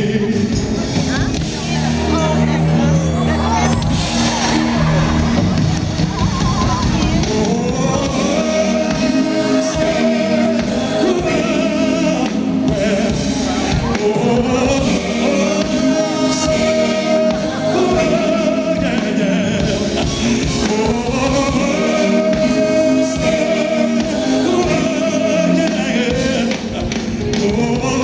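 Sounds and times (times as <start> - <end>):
man singing: 0.0 - 1.0, 7.0 - 28.0
live band playing: 0.0 - 28.0
women backing singers: 1.6 - 28.0.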